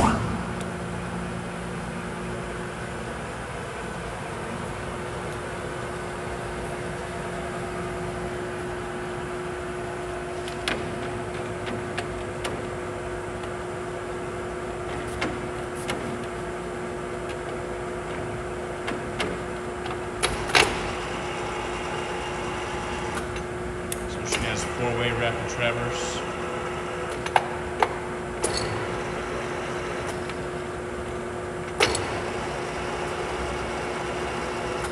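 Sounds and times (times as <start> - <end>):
lathe motor humming: 24.0 - 28.3.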